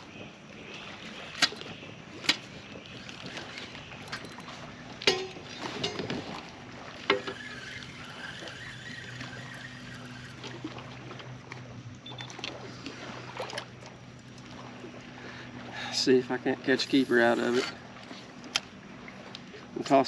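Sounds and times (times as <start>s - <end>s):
fishing reel clicks: 7.2s - 10.5s
light ticks: 19.3s - 19.5s.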